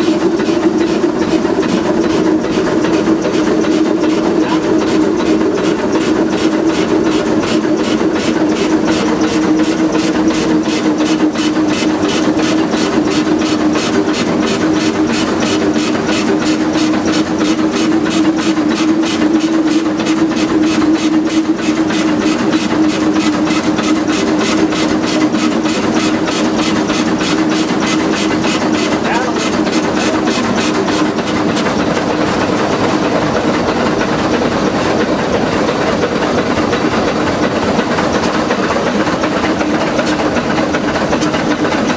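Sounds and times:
steam locomotive exhaust beat: 0:00.0 - 0:41.9
steady hum: 0:27.9 - 0:32.5.

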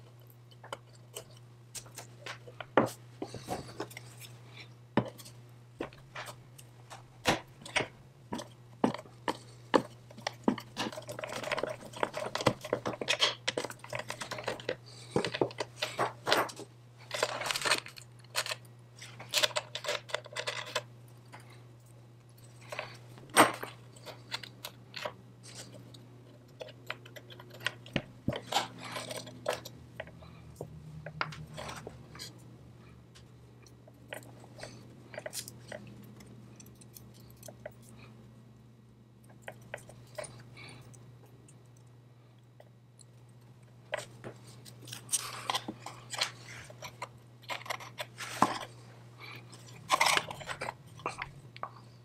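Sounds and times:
clicks and knocks of metal parts: 0:05.0 - 0:32.4, 0:33.2 - 0:38.0, 0:43.9 - 0:48.8.

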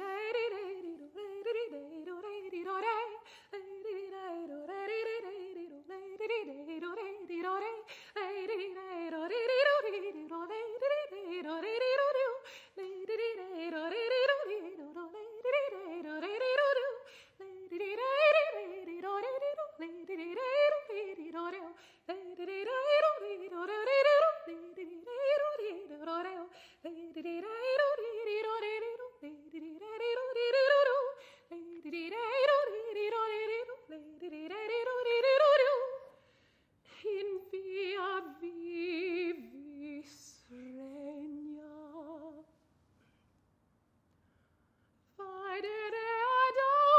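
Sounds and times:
soprano singing unaccompanied: 0:00.0 - 0:36.2, 0:36.9 - 0:42.6, 0:45.2 - 0:46.9.

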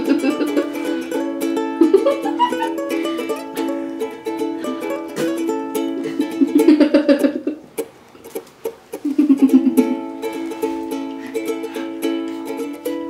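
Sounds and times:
plucked string music: 0:00.0 - 0:13.0.

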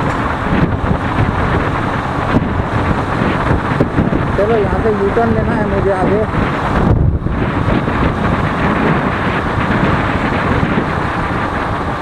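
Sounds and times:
motorcycle engine: 0:00.0 - 0:12.0
wind rushing over microphone: 0:00.0 - 0:12.0.

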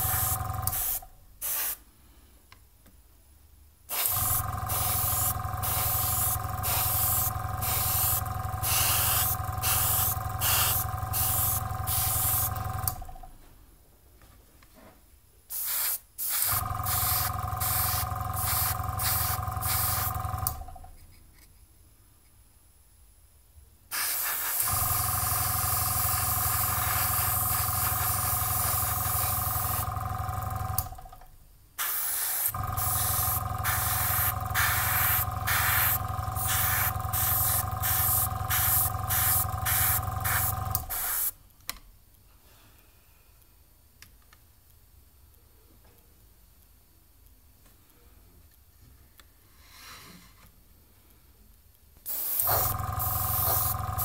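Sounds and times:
small compressor running: 0:00.0 - 0:01.0, 0:03.9 - 0:13.2, 0:16.4 - 0:20.8, 0:24.2 - 0:31.2, 0:31.8 - 0:41.3, 0:52.1 - 0:54.0
airbrush hissing: 0:00.0 - 0:01.8, 0:03.9 - 0:12.6, 0:15.5 - 0:20.2, 0:23.9 - 0:29.8, 0:31.8 - 0:41.4, 0:52.1 - 0:54.0.

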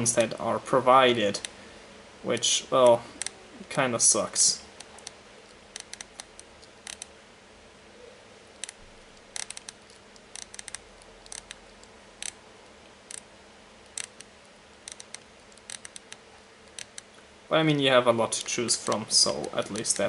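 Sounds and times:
small sharp control clicks: 0:01.3 - 0:01.6, 0:02.4 - 0:03.4, 0:04.8 - 0:07.1, 0:08.6 - 0:17.1, 0:18.4 - 0:20.0.

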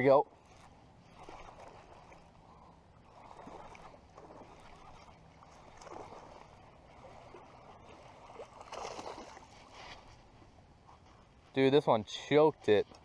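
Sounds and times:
fish splashing in water: 0:03.1 - 0:09.6.

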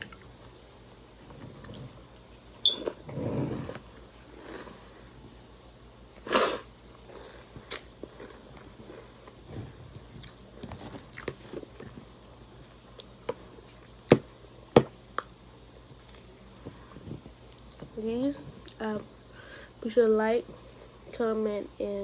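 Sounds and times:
chewing crunchy cereal: 0:06.9 - 0:12.1.

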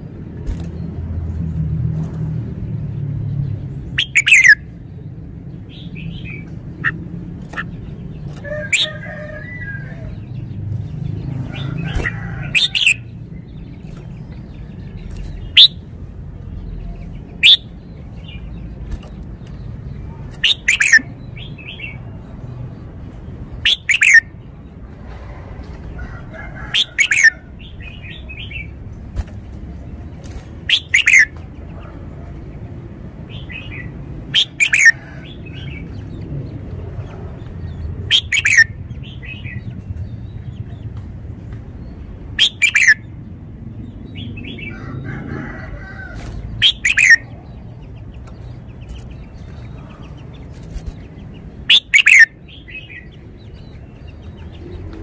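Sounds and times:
bird singing sharp phrases: 0:03.3 - 0:24.7, 0:29.7 - 0:31.9, 0:33.3 - 0:36.6, 0:37.4 - 0:40.9, 0:41.6 - 0:44.9, 0:46.5 - 0:55.0.

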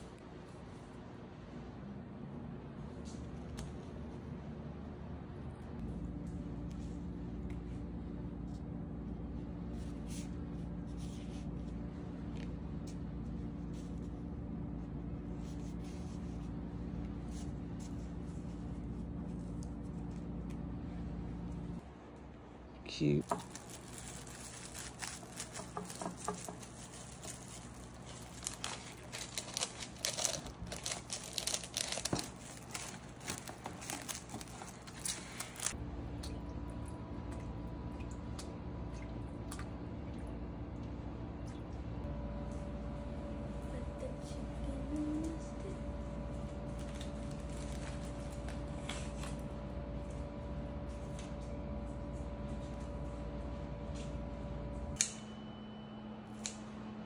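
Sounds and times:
steady hum: 0:00.0 - 0:57.0
plastic cling wrap crinkling: 0:23.2 - 0:35.8, 0:46.4 - 0:49.5.

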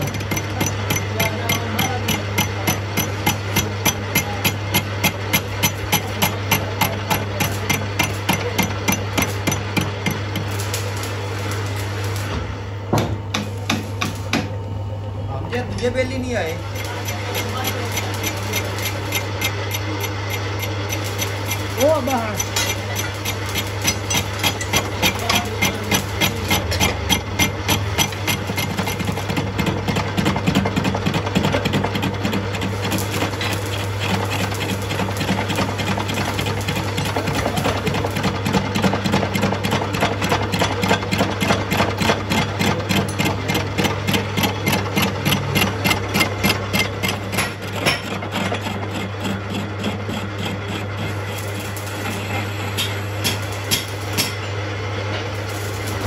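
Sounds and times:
lathe humming: 0:00.0 - 0:56.0
regular mechanical ticking: 0:15.7 - 0:52.0.

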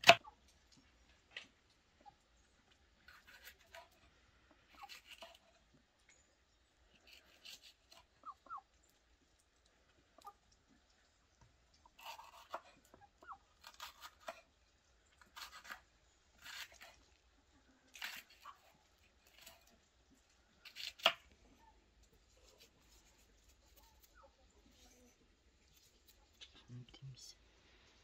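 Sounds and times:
knife slicing peppers: 0:04.7 - 0:05.5, 0:07.0 - 0:08.1, 0:12.0 - 0:12.8, 0:13.6 - 0:14.5, 0:15.2 - 0:17.0, 0:17.9 - 0:19.7, 0:20.6 - 0:21.3, 0:22.4 - 0:25.1.

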